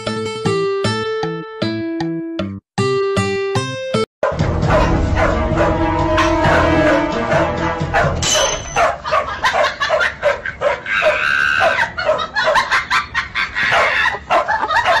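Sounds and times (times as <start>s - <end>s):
music: 0.0s - 8.8s.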